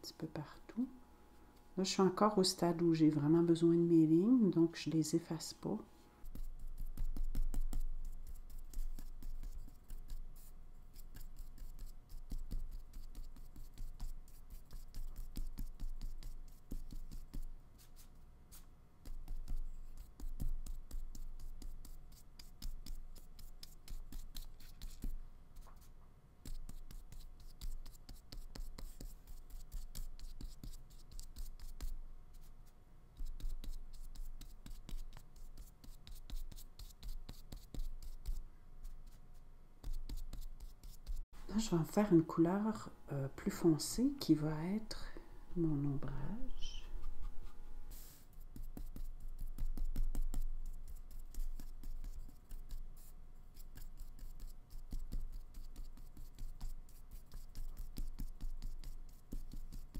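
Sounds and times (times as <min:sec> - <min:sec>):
paintbrush scratching on paper: 0:06.2 - 0:42.9, 0:45.7 - 0:59.9.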